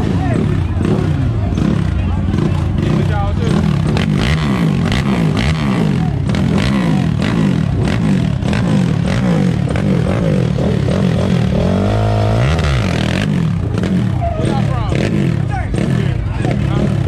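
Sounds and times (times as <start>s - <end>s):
quad engine revving: 0.0s - 17.0s.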